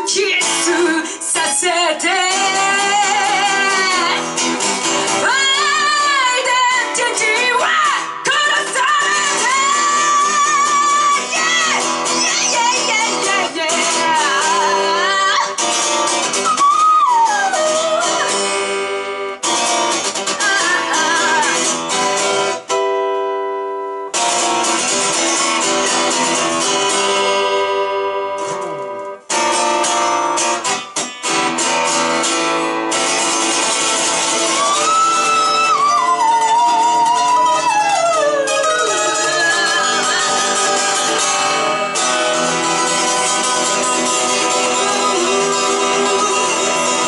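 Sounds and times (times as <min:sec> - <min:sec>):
rock band playing live: 0:24.1 - 0:47.0.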